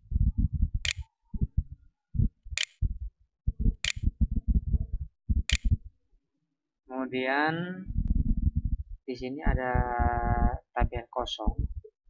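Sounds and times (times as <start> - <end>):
low pulsing rumble: 0.0 - 5.9, 7.8 - 11.9
computer mouse clicks: 0.8 - 1.1, 3.8 - 4.0, 5.5 - 5.7.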